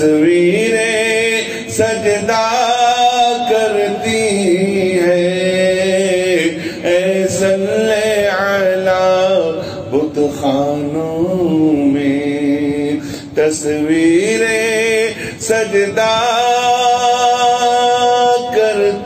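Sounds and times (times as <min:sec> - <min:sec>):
man singing into microphone: 0:00.0 - 0:19.0.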